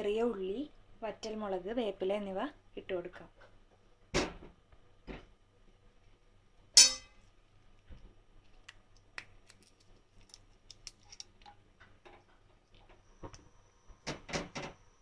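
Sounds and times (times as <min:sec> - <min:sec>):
chillies crackling in hot oil: 0:07.4 - 0:13.4.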